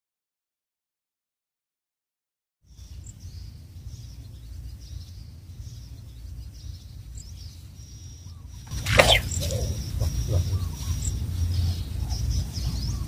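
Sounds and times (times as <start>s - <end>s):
faint bird chirps: 2.7s - 13.0s
steady low rumble: 2.7s - 13.0s.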